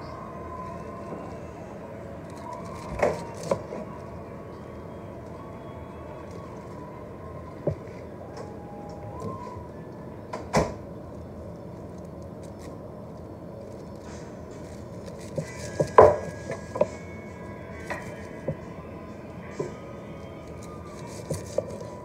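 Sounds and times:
knife cutting lettuce: 20.5 - 22.0.

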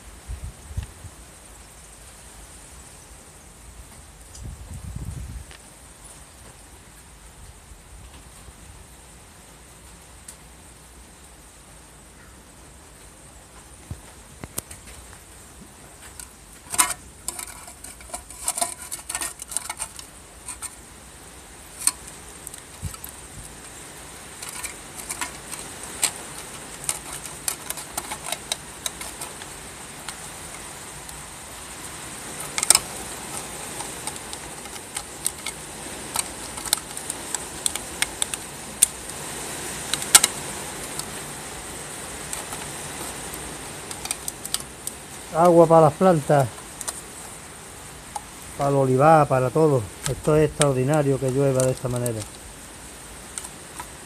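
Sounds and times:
heavy rain hissing: 0.0 - 54.0
metal parts clicking and clinking: 16.1 - 20.8, 21.8 - 23.2, 24.4 - 30.7, 32.4 - 39.0, 43.8 - 44.7, 50.0 - 52.4.

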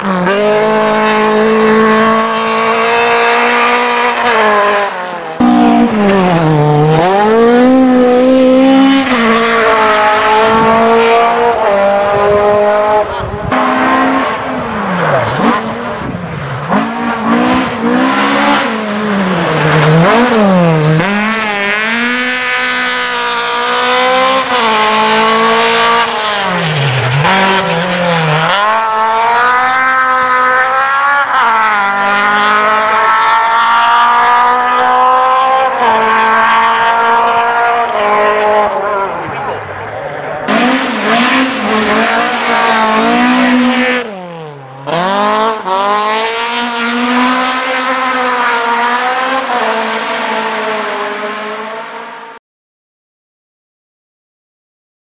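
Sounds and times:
rally car engines revving: 0.0 - 52.4.

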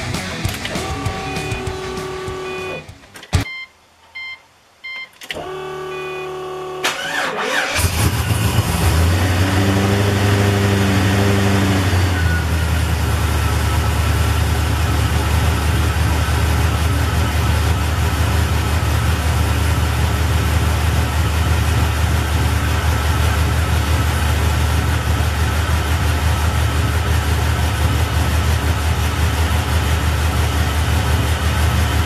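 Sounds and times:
car engine idling: 0.0 - 3.4, 9.9 - 32.0
dashboard chime beeps: 0.8 - 5.1
starter motor cranking: 6.8 - 8.6.

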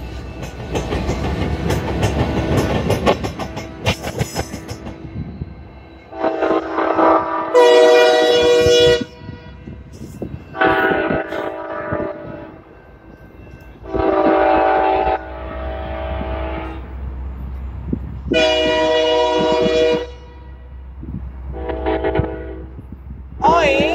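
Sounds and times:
locomotive air horn blasts: 6.1 - 9.9, 10.5 - 12.6, 13.8 - 16.9, 18.3 - 20.8, 21.5 - 22.8.

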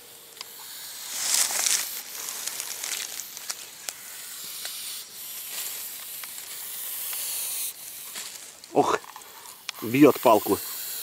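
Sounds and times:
snake hissing: 0.0 - 11.0
grass rustling clicks: 0.3 - 10.6.

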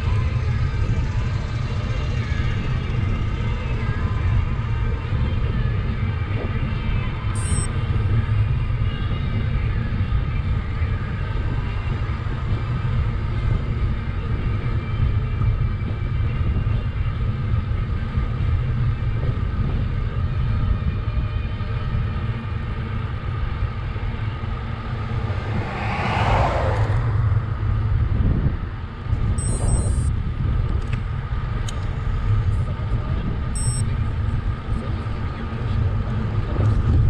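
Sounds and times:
wind rumble on microphone: 0.0 - 37.0.

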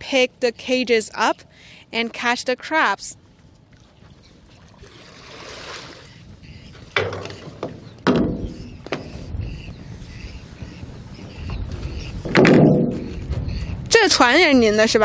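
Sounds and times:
hollow knocks on a small boat: 6.9 - 9.2, 12.3 - 13.4.

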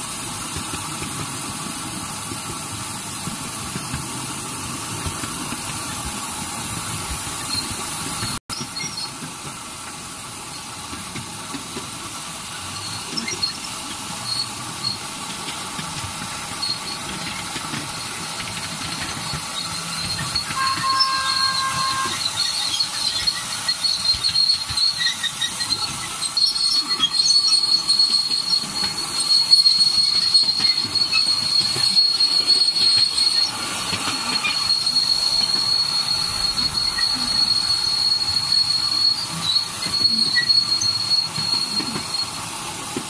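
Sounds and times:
small wheels clattering on rail: 0.0 - 43.0
faint wheel squeals: 12.5 - 43.0.

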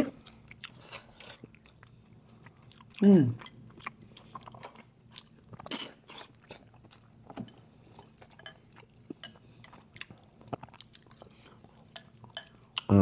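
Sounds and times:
quiet chewing: 0.1 - 12.9
utensils clinking against bowl: 11.9 - 12.6.

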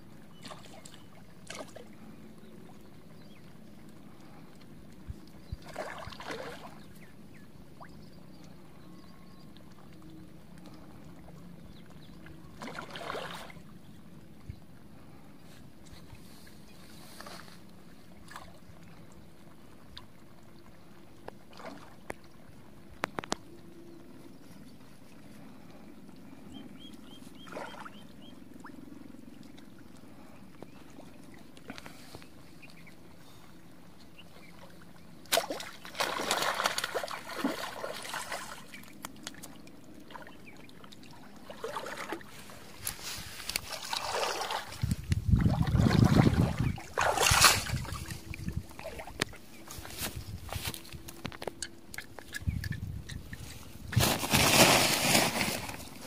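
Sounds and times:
fish splashing in water: 5.6 - 6.8, 12.5 - 13.6, 35.3 - 42.3, 43.4 - 49.4.

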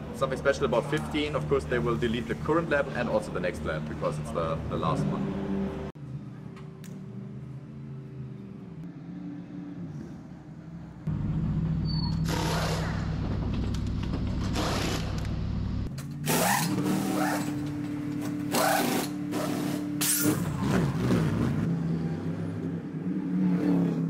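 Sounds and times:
steady low hum: 10.0 - 15.9
pneumatic wheel gun bursts: 16.2 - 17.5, 18.5 - 20.4.

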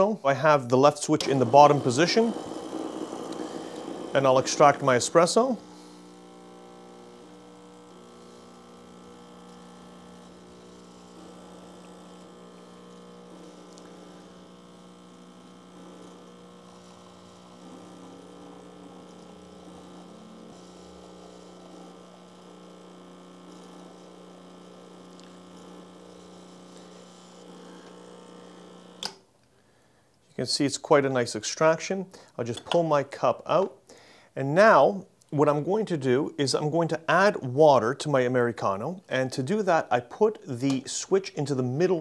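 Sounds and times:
espresso machine pump humming: 1.0 - 29.2.

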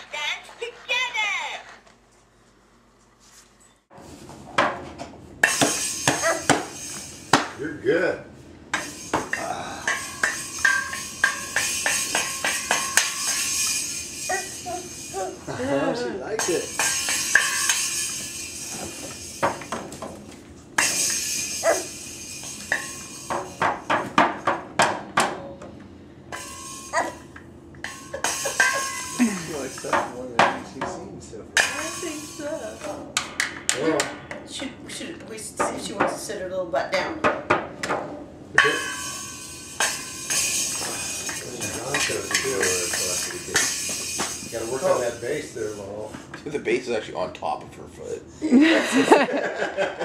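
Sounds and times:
toy cymbal crashing: 5.4 - 7.6, 8.7 - 20.2, 20.8 - 24.2, 26.3 - 30.6, 31.6 - 33.5, 38.6 - 46.1
toy drums hit: 5.4 - 7.6, 8.7 - 15.2, 16.4 - 20.2, 20.8 - 25.4, 27.8 - 31.0, 31.6 - 34.4, 38.6 - 45.8.

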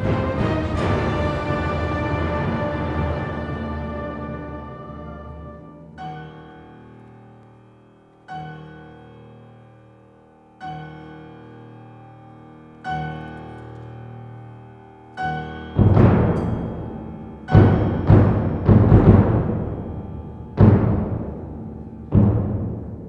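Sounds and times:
timpani: 0.0 - 6.2, 15.4 - 23.0
orchestra playing held chords: 0.0 - 7.5, 15.1 - 23.0.

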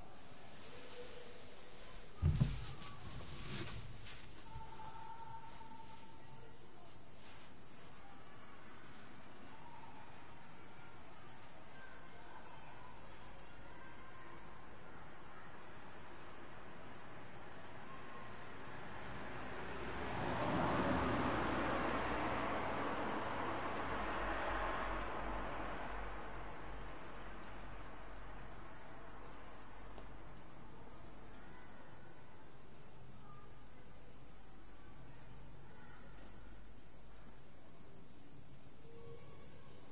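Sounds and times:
crickets chirring: 0.0 - 39.9.

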